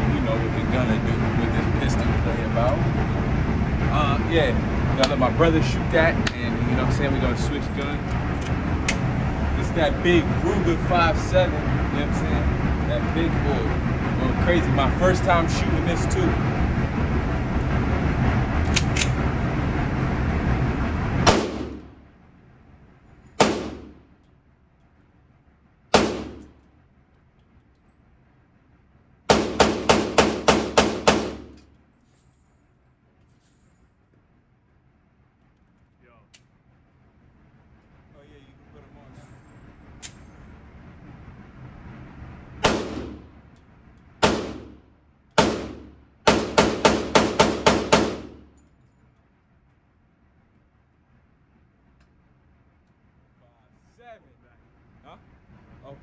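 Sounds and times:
pistol shots echoing: 25.9s - 26.5s, 29.3s - 31.5s, 42.6s - 43.2s, 44.2s - 44.8s, 45.4s - 48.4s
pistol shots echoing indoors: 45.4s - 48.3s.

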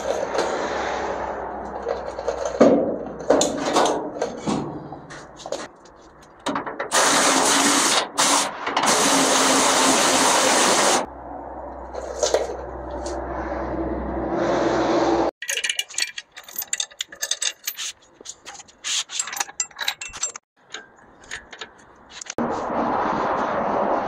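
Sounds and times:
metal clinking and knocking: 15.4s - 22.4s.

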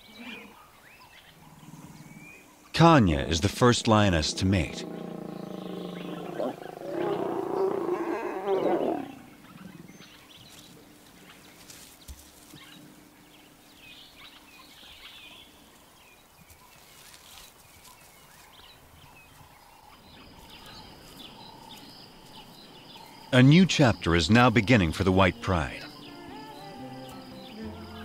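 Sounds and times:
bird calls and chirps: 0.0s - 28.0s.

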